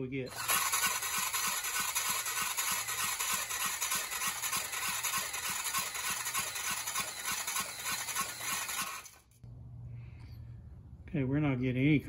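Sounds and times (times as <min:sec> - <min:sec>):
engine turning over pulse: 0:00.3 - 0:09.3
power drill whining: 0:00.3 - 0:09.4.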